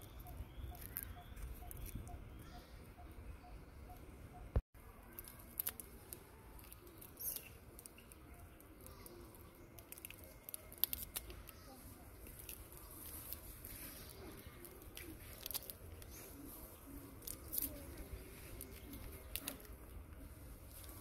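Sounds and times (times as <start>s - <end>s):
soft rustling: 9.9s - 21.0s.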